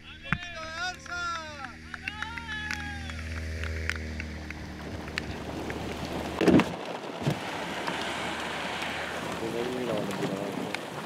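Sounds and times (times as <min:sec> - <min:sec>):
car engine passing on wet road: 0:02.3 - 0:11.0
rain falling on a car: 0:02.8 - 0:11.0.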